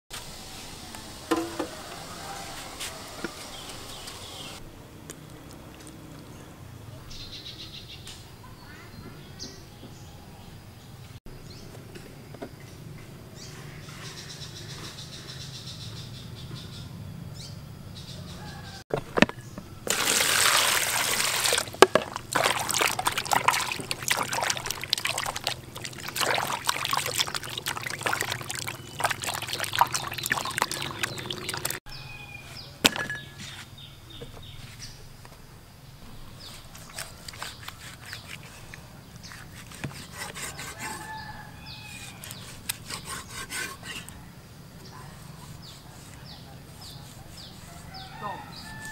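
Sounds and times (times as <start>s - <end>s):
water pouring into basin: 19.9s - 31.8s
water splashing and sloshing: 19.9s - 31.8s.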